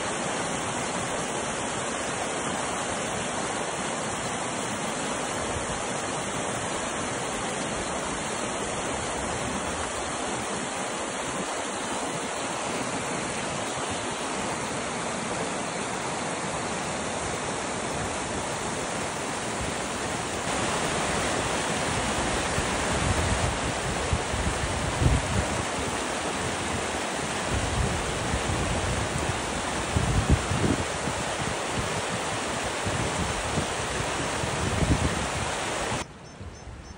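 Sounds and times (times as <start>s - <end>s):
water rushing over weir: 0.0s - 36.1s
wind buffeting microphone: 27.4s - 36.9s.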